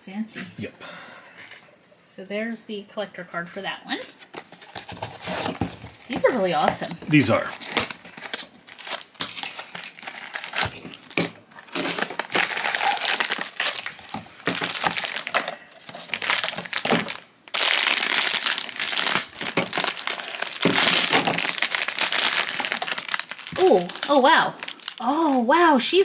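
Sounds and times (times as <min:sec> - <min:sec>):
foil pouch crinkling: 0:07.1 - 0:26.0.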